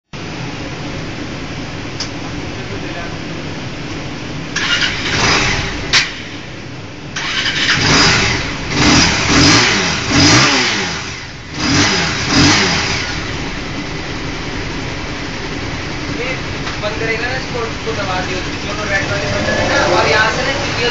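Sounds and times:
motorcycle engine revving: 4.6 - 6.4, 7.2 - 14.1, 18.0 - 20.9.

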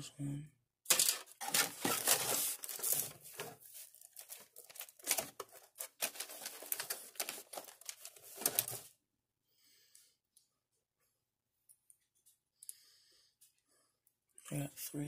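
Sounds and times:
plastic parts clicking and knocking: 0.9 - 3.6, 4.2 - 8.9
packaging crinkling and rustling: 0.9 - 8.9.

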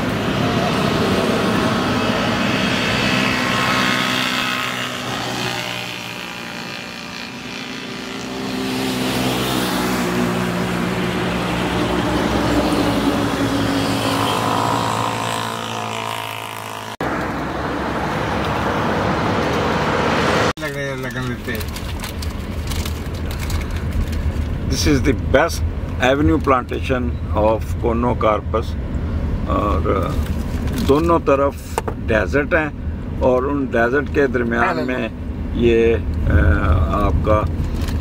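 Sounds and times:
passing vehicle engines humming: 0.0 - 20.6
tractors approaching: 0.0 - 27.6, 33.2 - 35.2.

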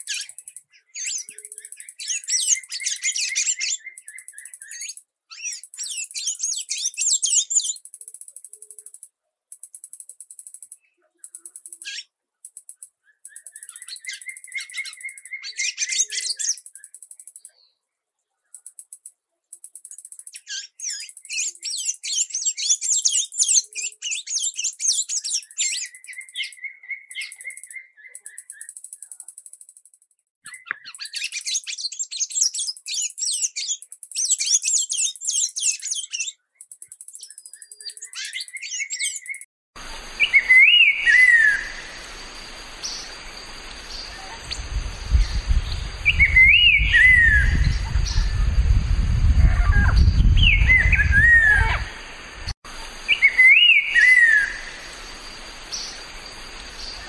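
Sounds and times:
whistled bird notes: 0.0 - 9.0, 9.6 - 17.8, 19.7 - 57.0
bird twittering song: 0.0 - 57.0
hissy background: 39.8 - 57.0.

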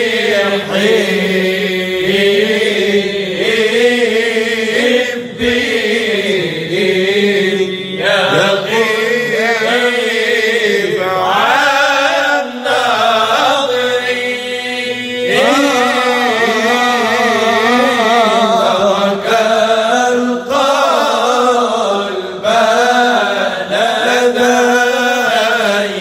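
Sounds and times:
lead voice singing: 0.0 - 26.0
male group chanting: 0.0 - 26.0.

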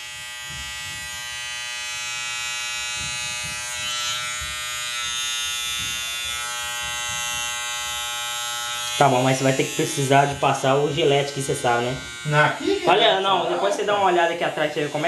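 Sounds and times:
electric hair clipper buzzing: 0.0 - 15.0.

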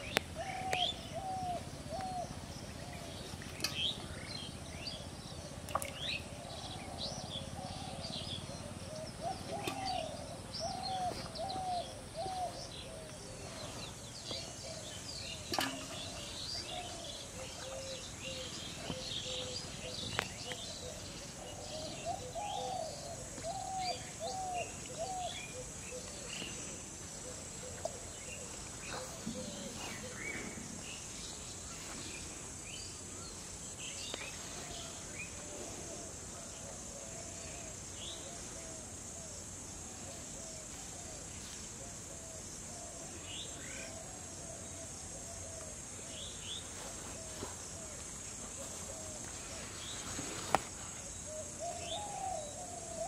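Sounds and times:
birds chirping and calling: 0.0 - 38.6, 42.8 - 53.0
high insect drone: 0.0 - 53.0.

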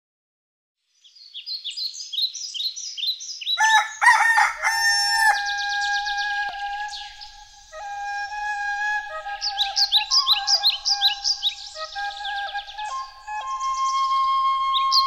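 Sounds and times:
bird chirps: 0.9 - 15.0
flute playing long notes: 3.7 - 15.0.

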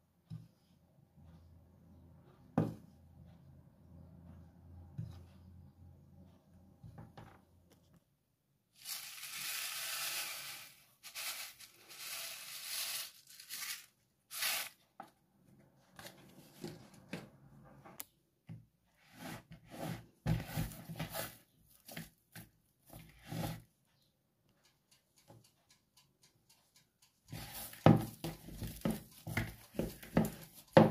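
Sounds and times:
hand mixer scraping dry mixture: 8.8 - 13.2
dough squishing and slapping: 27.3 - 30.9.

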